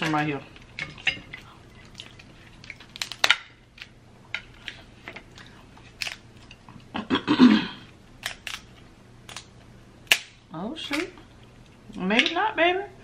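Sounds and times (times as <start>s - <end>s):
shell crunching: 1.8s - 4.0s
crab shell snapping: 2.6s - 4.0s, 6.0s - 6.2s, 8.2s - 11.1s.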